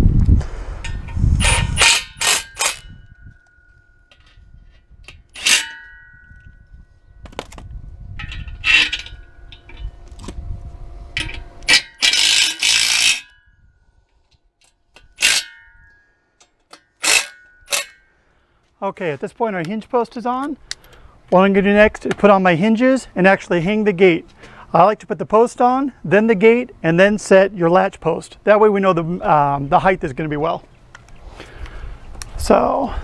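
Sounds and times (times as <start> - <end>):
metal tools clinking: 0.8 - 6.8, 8.2 - 10.0, 11.2 - 13.4, 14.6 - 18.1.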